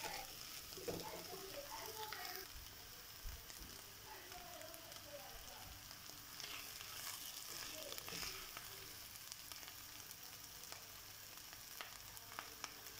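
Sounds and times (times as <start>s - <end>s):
meat sizzling in oil: 0.0s - 12.9s
wooden spoon stirring and scraping: 6.3s - 9.0s.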